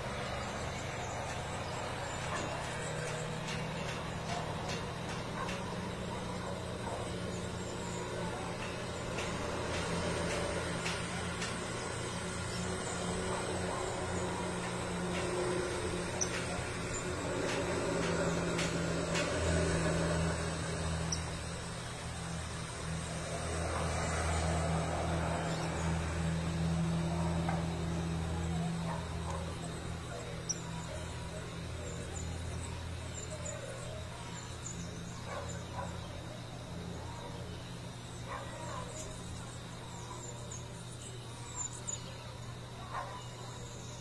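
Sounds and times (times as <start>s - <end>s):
low mechanical hum: 0.0s - 44.0s.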